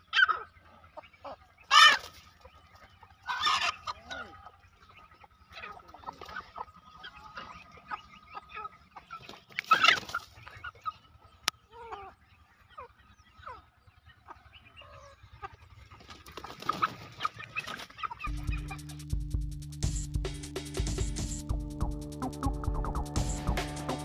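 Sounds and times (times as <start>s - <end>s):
chickens clucking: 0.0s - 19.3s
music: 18.3s - 24.0s.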